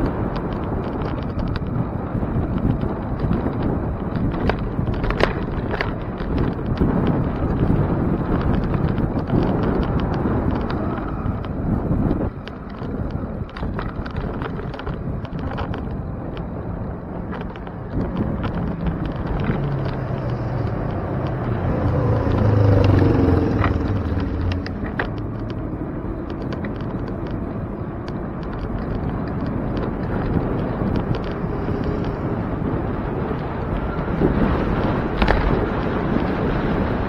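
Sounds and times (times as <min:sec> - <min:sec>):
bicycle clicks and rattles: 0:00.0 - 0:37.0
street traffic rumble: 0:00.0 - 0:37.0
vehicle engine passing close: 0:18.5 - 0:26.4.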